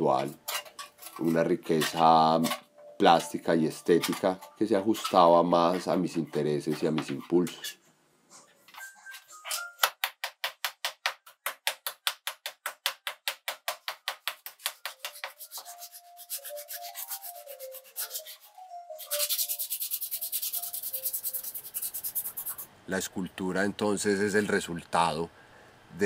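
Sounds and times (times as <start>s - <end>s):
tool scraping copper pipe: 0.1s - 7.8s.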